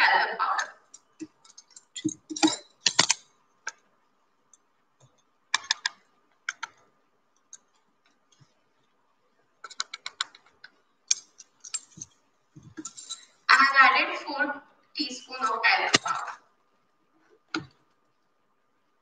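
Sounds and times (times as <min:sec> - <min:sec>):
teaspoon clicking against bowls: 0:00.9 - 0:03.2, 0:11.1 - 0:12.1.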